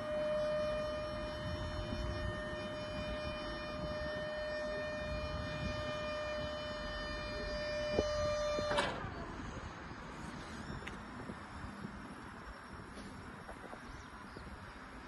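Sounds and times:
hydraulic pump motor whining: 0.0 - 12.0.

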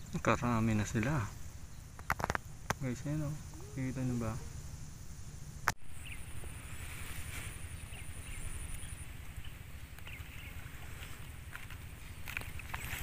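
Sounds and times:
thin high tone: 2.8 - 5.4.

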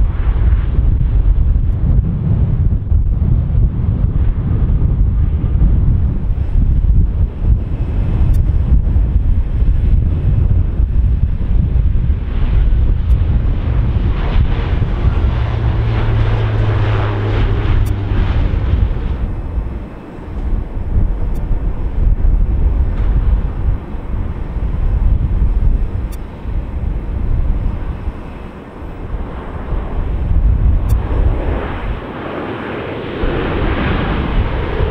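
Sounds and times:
jet landing rumble: 0.0 - 34.9
turboprop propeller hum: 0.0 - 34.9
wind buffeting microphone: 0.0 - 34.9.

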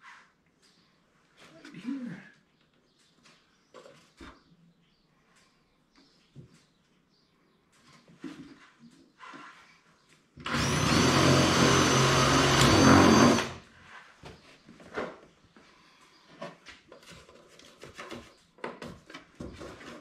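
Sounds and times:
cordless drill boring through wood: 10.4 - 13.6.

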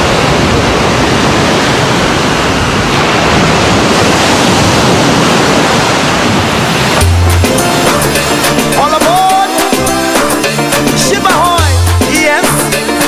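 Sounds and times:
ocean waves breaking: 0.0 - 13.0.

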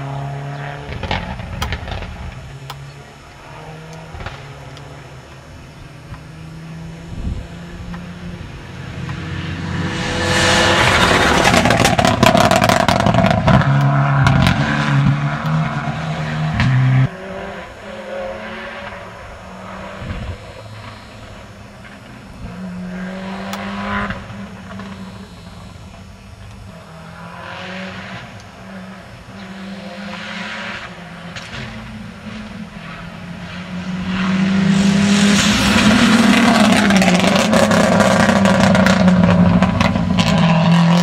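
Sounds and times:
distant rally car engine: 0.0 - 41.0
rally car engine passing at full throttle: 0.0 - 41.0
sharp engine crackles: 18.8 - 29.7.

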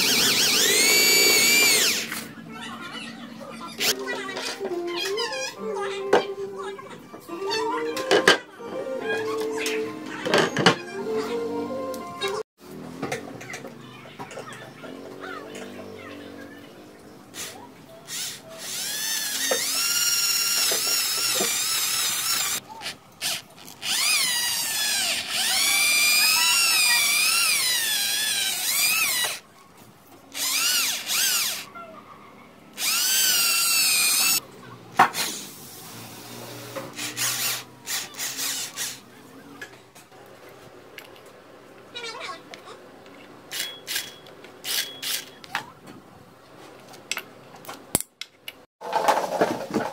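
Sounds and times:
electric drill motor whine: 0.0 - 2.2, 18.1 - 22.6, 23.2 - 29.4, 30.4 - 31.7, 32.8 - 34.4.

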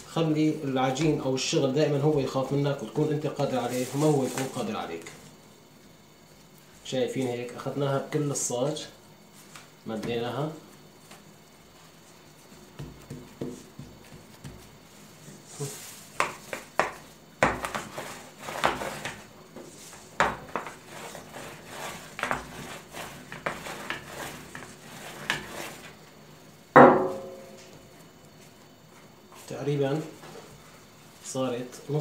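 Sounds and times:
rolling pin knocking on metal tray: 26.8 - 27.4
ringing metallic knock: 26.8 - 27.6.

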